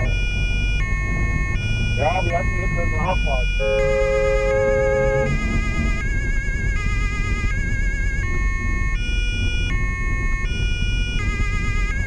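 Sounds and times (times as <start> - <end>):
low steady tone: 0.0 - 6.6
road and engine rumble: 0.0 - 12.0
two-tone police siren: 0.0 - 12.0.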